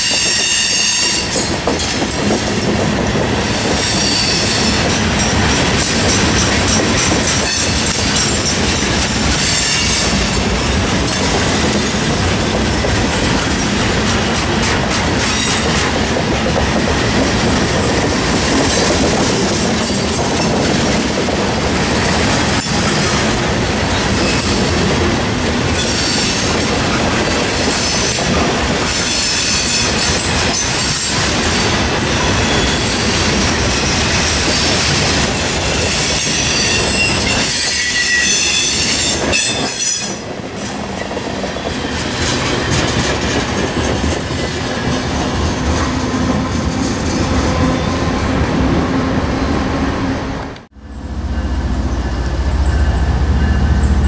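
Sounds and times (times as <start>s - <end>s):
steel wheels clattering over rails: 1.2s - 47.8s
high-pitched wheel squeal: 35.8s - 40.2s.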